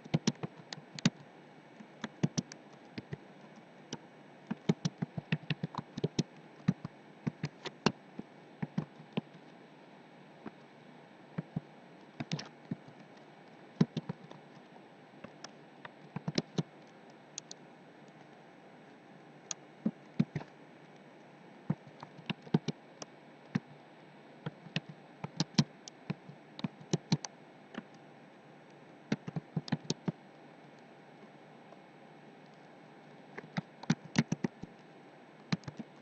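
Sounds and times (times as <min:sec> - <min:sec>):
faint steady hiss: 0:00.0 - 0:36.0
typing on a keyboard: 0:00.1 - 0:01.2, 0:02.0 - 0:03.2, 0:04.5 - 0:08.0, 0:13.8 - 0:14.2, 0:16.2 - 0:16.7, 0:21.7 - 0:22.8, 0:24.5 - 0:27.9, 0:29.1 - 0:30.2, 0:33.4 - 0:34.7, 0:35.5 - 0:35.9.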